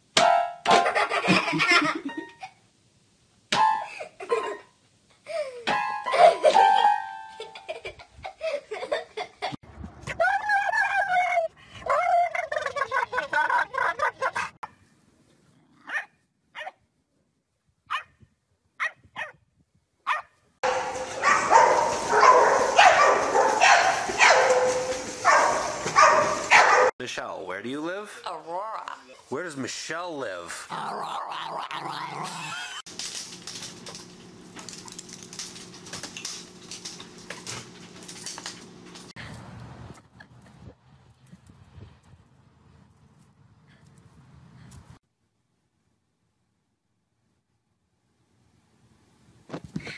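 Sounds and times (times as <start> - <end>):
dog barking: 15.8 - 16.8, 17.9 - 18.1, 18.8 - 19.4, 20.1 - 26.9
dog claws clicking on hard floor: 32.9 - 39.1.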